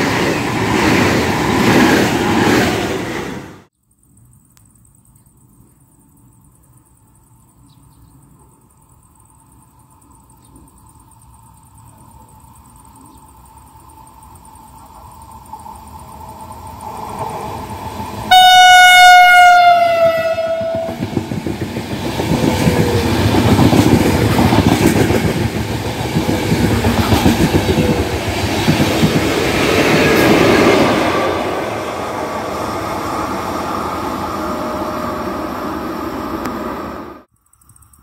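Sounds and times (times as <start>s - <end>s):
train rumble: 0.0s - 3.7s, 11.5s - 37.3s
train horn blast: 18.3s - 21.0s.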